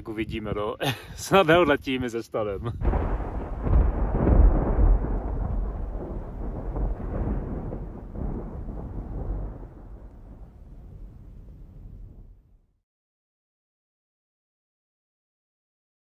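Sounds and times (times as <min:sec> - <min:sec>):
rolling thunder: 0:02.7 - 0:12.6.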